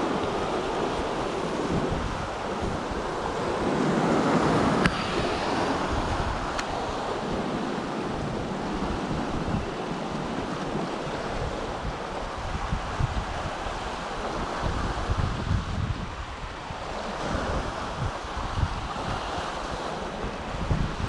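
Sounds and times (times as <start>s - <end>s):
surf breaking over rocks: 0.0s - 16.2s
wind buffeting microphone: 0.0s - 21.0s.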